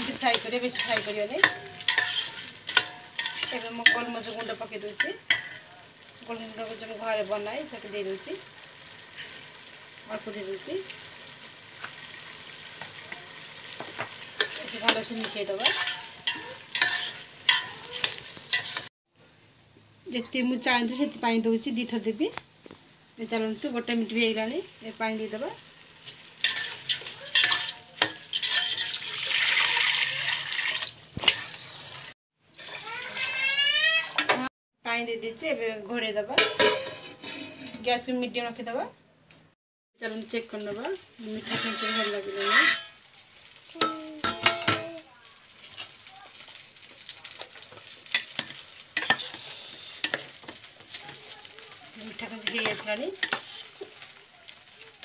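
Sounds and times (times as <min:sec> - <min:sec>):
metal spoon stirring and scraping: 0:00.0 - 0:05.7, 0:13.6 - 0:18.9, 0:26.0 - 0:33.4, 0:34.0 - 0:34.5, 0:36.4 - 0:37.9, 0:41.2 - 0:43.0, 0:45.5 - 0:55.0
food sizzling in a metal pot: 0:00.0 - 0:18.9, 0:20.0 - 0:38.9, 0:40.0 - 0:55.0
spoon clinking against pot: 0:26.4 - 0:29.0
water pouring into pot: 0:28.3 - 0:34.2
ladle clinking against pot: 0:36.4 - 0:37.4.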